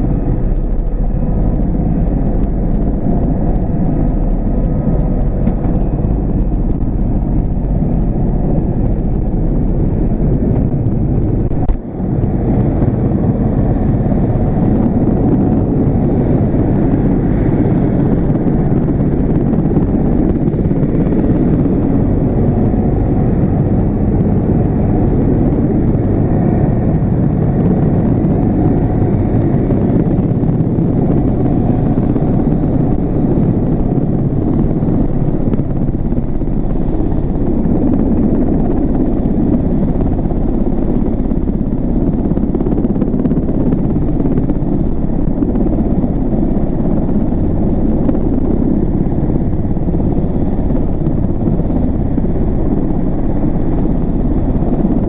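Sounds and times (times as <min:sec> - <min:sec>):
helicopter rotor and turbine rumble: 0:00.0 - 0:55.0.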